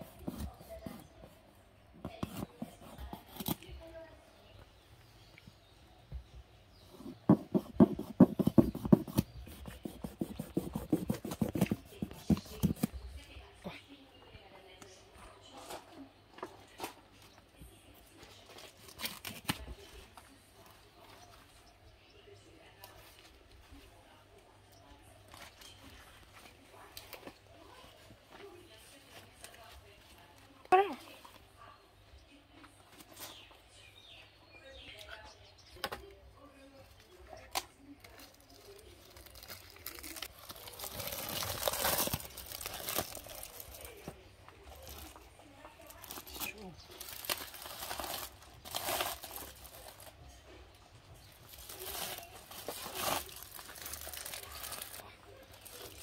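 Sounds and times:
foil and leaves crinkling: 8.6s - 13.3s, 18.1s - 21.4s, 37.1s - 50.5s, 51.2s - 56.0s.

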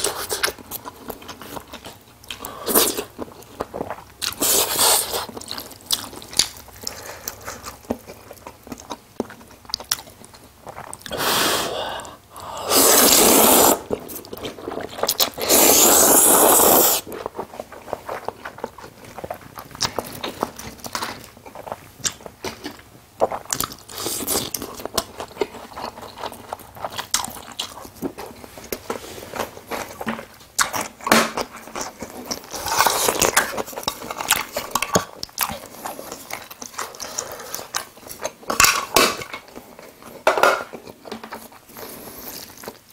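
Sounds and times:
chewing with wet mouth clicks: 0.3s - 11.1s, 17.1s - 28.8s, 30.3s - 39.1s
slurping noodles: 11.1s - 14.1s, 14.8s - 17.1s.

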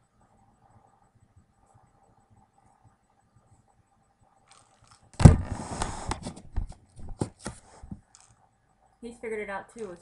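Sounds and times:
kibble rattling in plastic ball: 4.5s - 5.2s.

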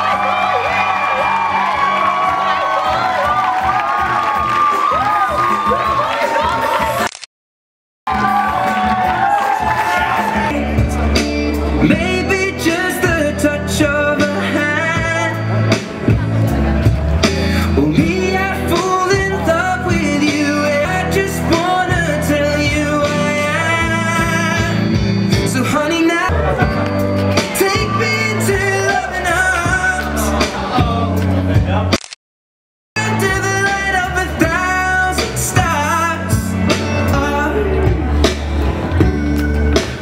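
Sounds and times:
song with sung melody and bass: 8.1s - 32.0s, 33.0s - 40.0s.

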